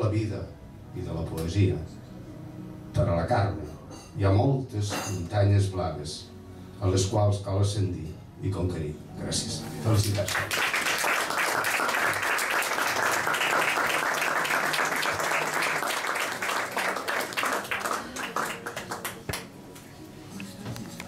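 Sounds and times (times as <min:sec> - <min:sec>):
audience applauding: 0:10.0 - 0:19.6.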